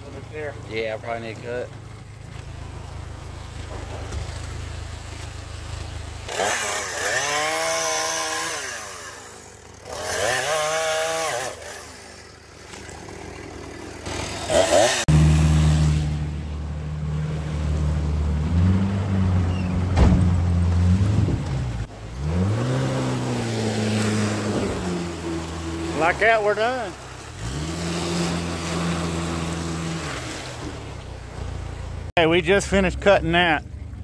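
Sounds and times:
outboard motor running: 0.0 - 34.0
chainsaw cutting log: 6.2 - 16.3, 22.2 - 30.7.

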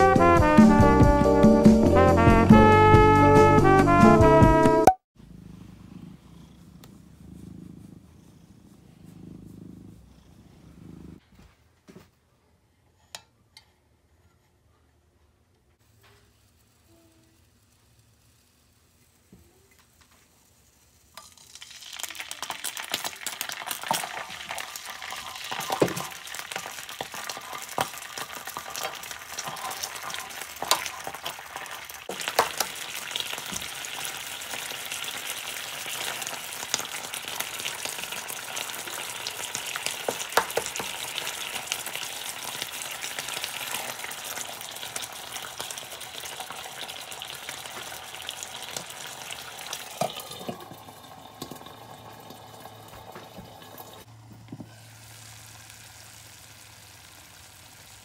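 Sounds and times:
sauce sizzling in hot oil: 20.6 - 54.1, 54.7 - 58.0.

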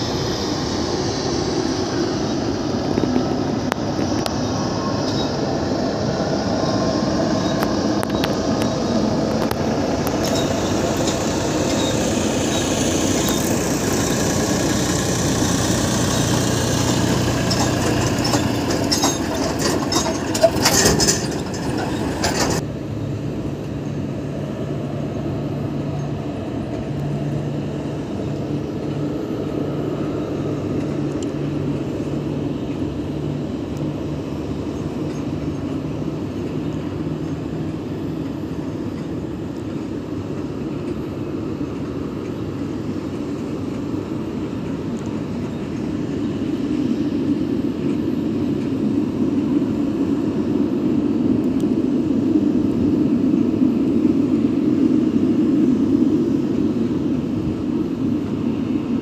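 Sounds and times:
vehicle rumble from inside: 0.0 - 47.0
low engine hum: 0.0 - 59.0.

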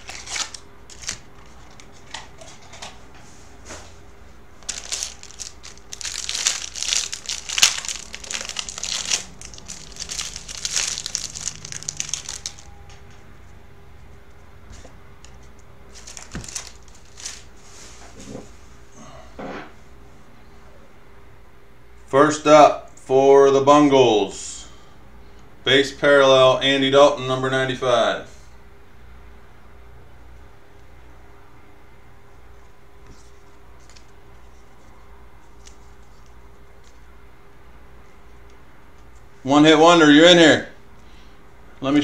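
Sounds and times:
foil wrapper crinkling and tearing: 0.0 - 1.3, 4.6 - 12.7, 15.9 - 17.5.

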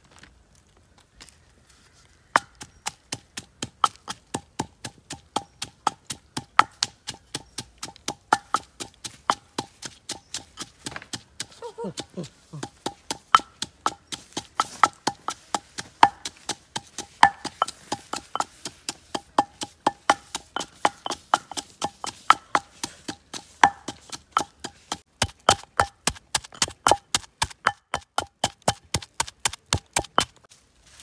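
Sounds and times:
rapid wooden chopping: 2.4 - 30.5.

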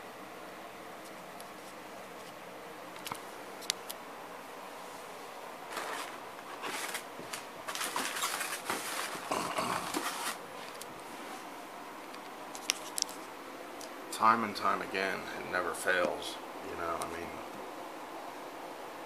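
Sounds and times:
rustling and scraping: 4.8 - 11.6, 12.5 - 13.4.

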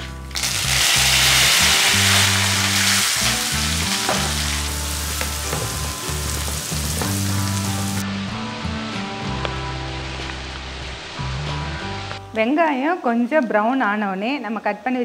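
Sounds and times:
hot oil sizzling: 0.0 - 8.0
onion frying in oil: 0.2 - 8.0.

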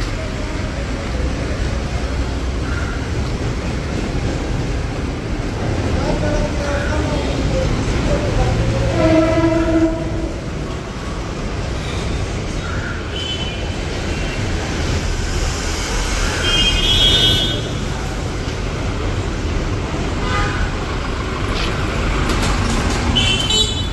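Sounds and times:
traffic rumble: 0.0 - 23.9
car horn toots: 23.2 - 23.9.

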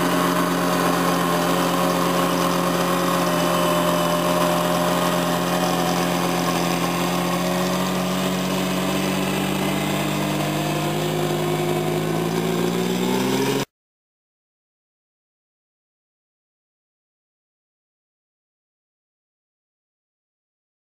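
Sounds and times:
truck engine running: 0.0 - 13.7.

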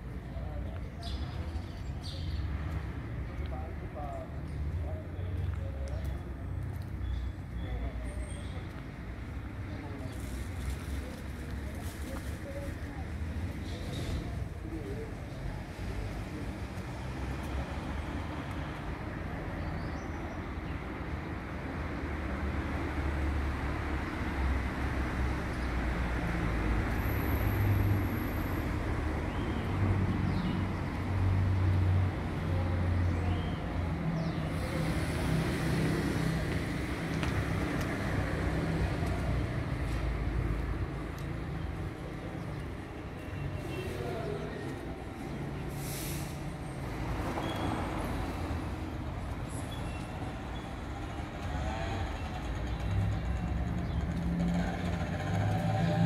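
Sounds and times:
low street rumble: 0.0 - 56.0
short hiss: 45.7 - 46.4.

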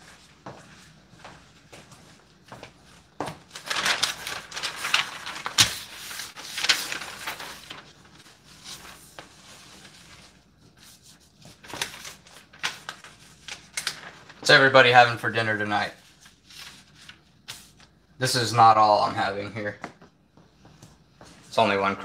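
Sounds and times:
newspaper rustling: 2.2 - 18.0
paper crackle: 3.2 - 18.0.

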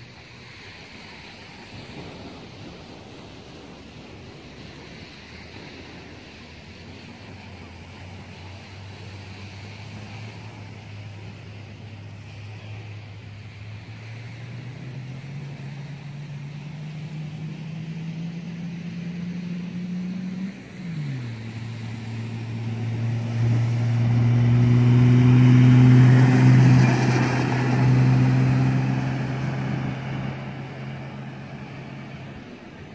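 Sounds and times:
diesel engine revving: 6.8 - 32.9.

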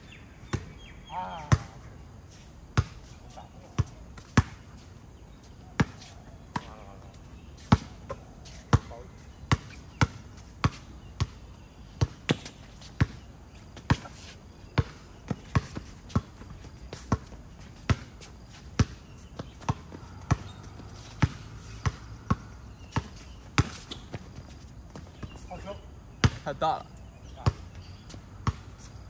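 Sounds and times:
basketball bouncing on hard court: 1.5 - 1.8, 3.8 - 4.6, 7.7 - 11.4, 12.0 - 13.2, 13.8 - 14.1, 14.8 - 18.2, 18.8 - 25.4, 27.4 - 28.7.

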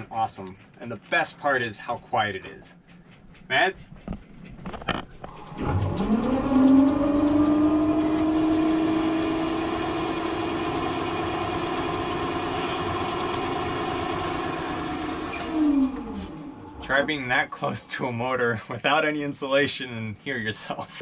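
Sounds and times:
electric boat motor whine: 5.2 - 17.7.

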